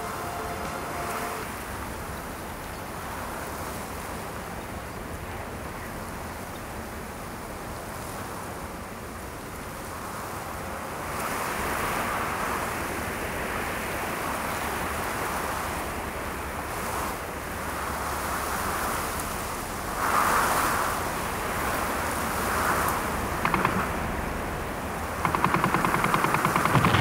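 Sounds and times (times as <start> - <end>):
rushing noise: 22.5 - 27.0
rapid gunfire: 23.4 - 24.5, 25.1 - 27.0.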